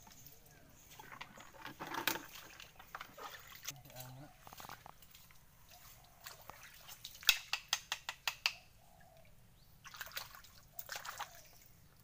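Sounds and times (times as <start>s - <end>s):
water splashing and sloshing: 0.0s - 7.8s, 9.8s - 12.0s
knife striking wet mud: 7.0s - 8.6s.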